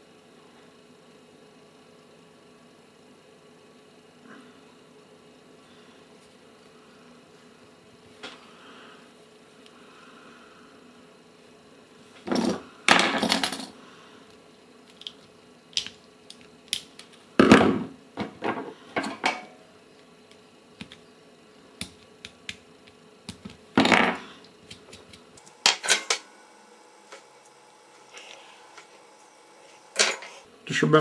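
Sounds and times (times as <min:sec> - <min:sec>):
small clicks and taps: 0:20.3 - 0:21.0.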